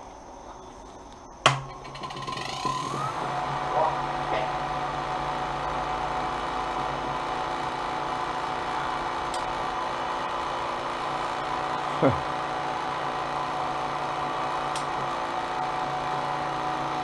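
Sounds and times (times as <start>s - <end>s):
cotton candy machine humming: 1.4s - 17.0s.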